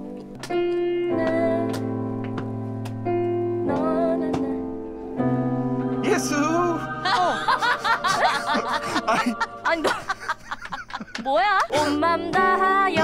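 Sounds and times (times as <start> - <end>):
keyboard chords: 0.0 - 13.0
person singing gospel-style: 5.8 - 10.9, 11.5 - 13.0
laughter: 7.0 - 11.9.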